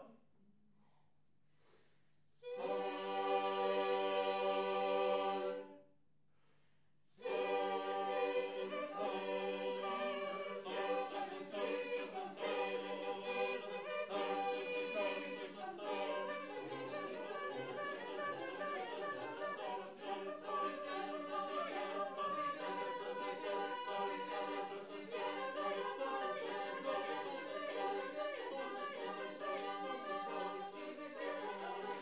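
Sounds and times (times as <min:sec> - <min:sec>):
choir singing a cappella: 0:02.4 - 0:05.8, 0:07.1 - 0:32.0.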